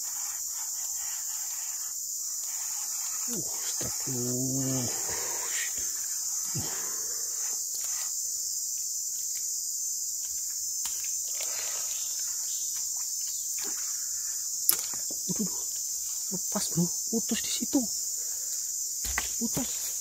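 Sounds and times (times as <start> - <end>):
insect chorus buzzing: 0.0 - 20.0.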